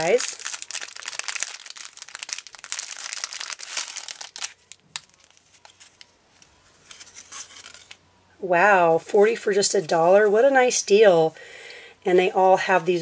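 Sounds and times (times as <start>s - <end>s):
plastic bag crinkling: 0.0s - 6.1s.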